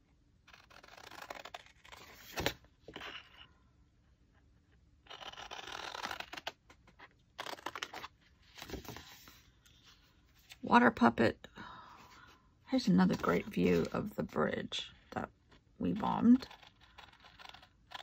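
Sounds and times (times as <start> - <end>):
paper rustling and scraping: 7.4 - 10.6.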